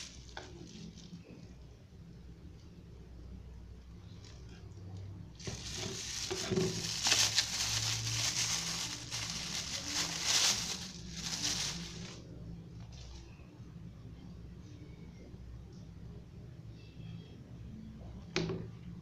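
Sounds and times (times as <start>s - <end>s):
plastic wrap crinkling: 0.0s - 1.4s, 5.4s - 12.3s.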